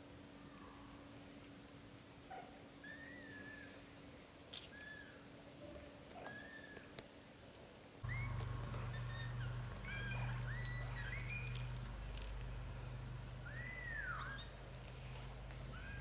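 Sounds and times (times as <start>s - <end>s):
kittens mewing: 8.0s - 12.3s.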